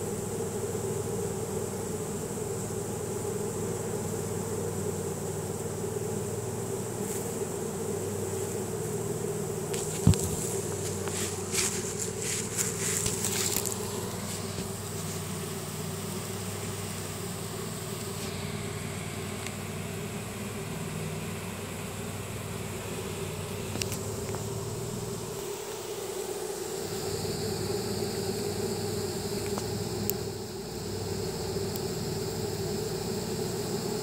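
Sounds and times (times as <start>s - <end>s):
bees buzzing: 0.0s - 34.0s.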